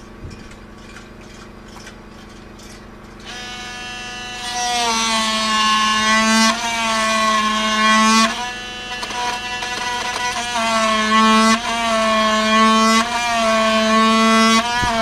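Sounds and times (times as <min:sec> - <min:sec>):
power tool motor whining on wood: 0:03.2 - 0:15.0.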